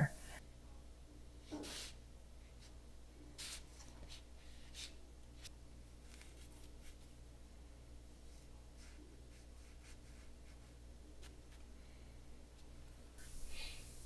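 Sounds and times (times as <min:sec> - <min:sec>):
paintbrush swishing on paper: 0:01.4 - 0:02.0, 0:03.4 - 0:07.1.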